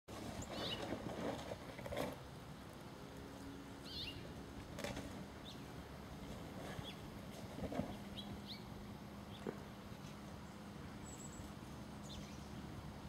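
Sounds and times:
outdoor background noise: 0.1 - 13.0
bird chirping: 3.8 - 4.3, 7.9 - 8.7, 9.3 - 12.6.

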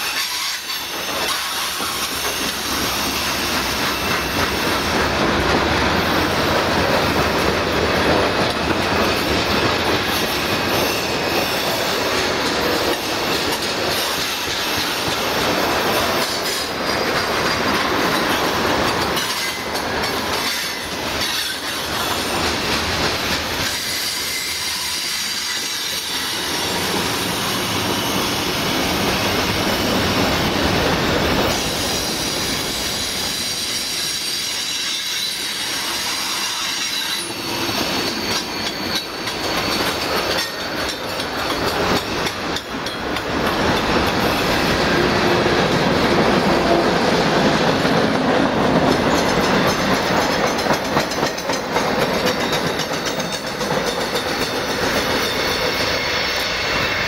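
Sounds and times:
high wheel squeal: 0.0 - 5.0, 9.0 - 12.0, 23.2 - 30.2, 31.5 - 41.7, 52.2 - 57.0
train wheels rumbling on rails: 0.0 - 57.0.

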